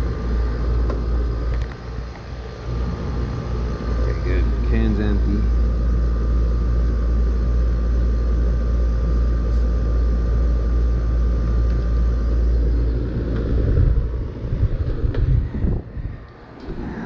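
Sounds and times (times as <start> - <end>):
air conditioner unit humming: 0.0 - 17.0
faint steady whine: 0.0 - 17.0.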